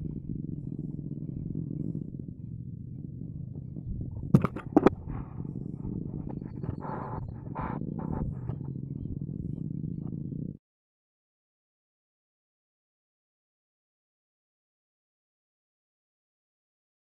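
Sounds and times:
steady low rumble: 0.0 - 10.6.

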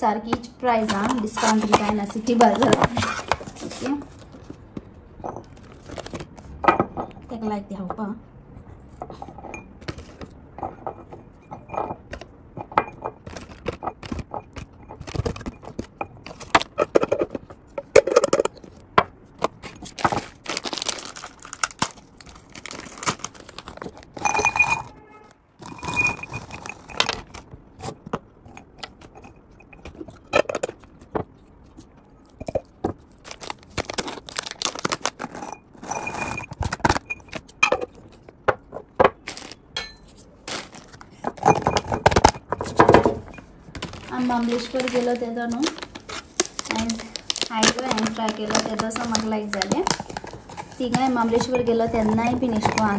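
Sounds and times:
plastic packaging crinkling: 5.5 - 6.6, 13.2 - 28.0, 29.8 - 38.3, 39.2 - 39.6, 40.2 - 43.0, 43.6 - 52.9
dried fruit clinking in glass jar: 23.6 - 27.3, 46.6 - 52.9.

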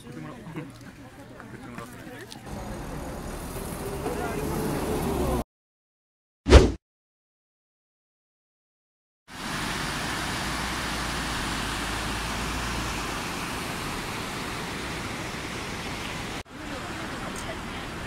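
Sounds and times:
river rushing over stones: 9.3 - 18.0.

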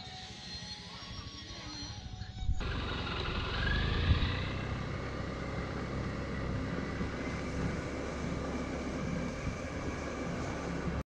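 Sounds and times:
scooter engine running: 2.6 - 11.0.

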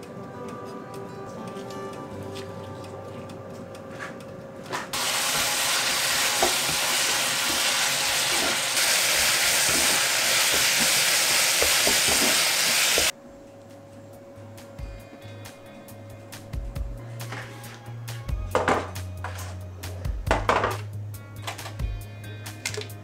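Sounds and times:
vegetables sizzling in frying pan: 5.0 - 13.1.

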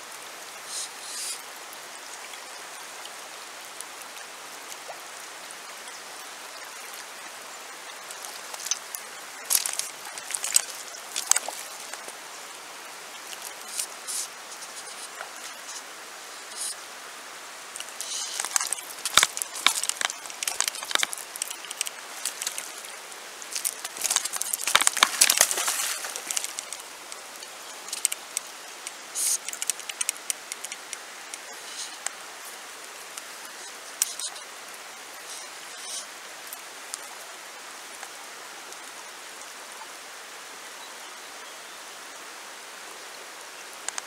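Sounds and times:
river rushing over stones: 0.0 - 40.6
close crackling and clicking: 8.0 - 12.2, 17.8 - 32.2.

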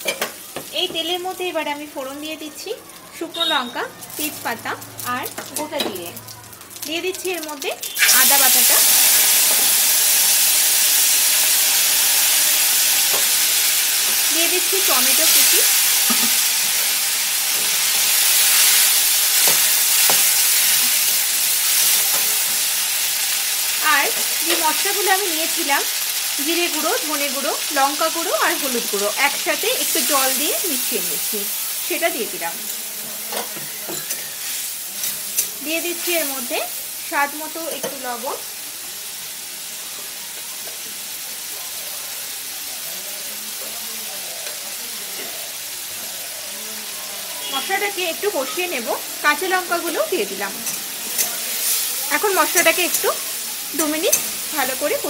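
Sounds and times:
tomatoes sizzling in oil: 0.0 - 55.0
spatula scraping a pan: 32.7 - 35.6.

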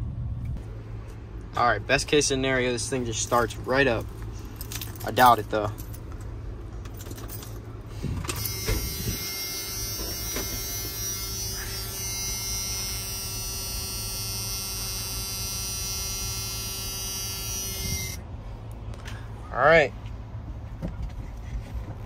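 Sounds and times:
steady electric buzz: 8.2 - 18.3.

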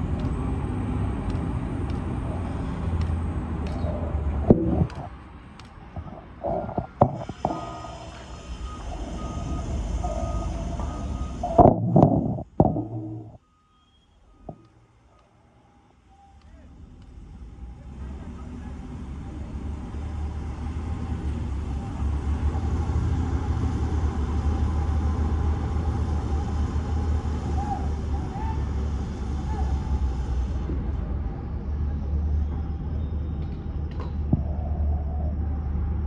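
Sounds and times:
steady low rumble: 0.0 - 13.4.

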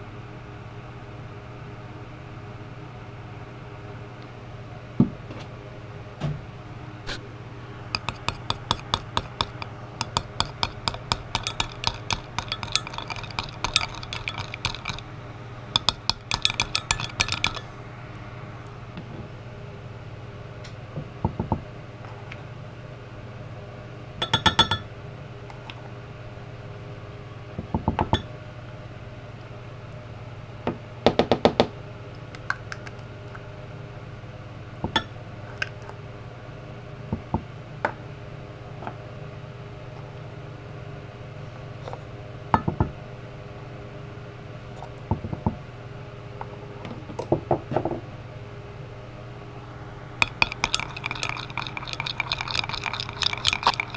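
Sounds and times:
light clinks on glass cup: 8.0 - 15.1, 15.8 - 17.7, 24.2 - 24.9, 50.2 - 53.9
glitter shaker rattling: 11.3 - 15.1, 15.8 - 17.7, 50.2 - 53.9.

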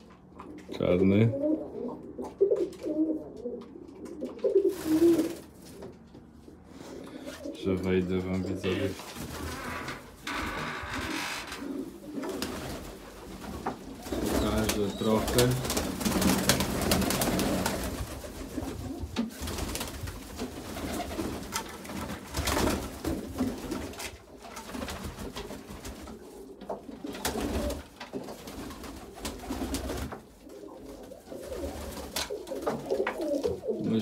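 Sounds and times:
pigeons cooing: 0.4 - 5.4, 11.6 - 19.1, 29.0 - 34.0.

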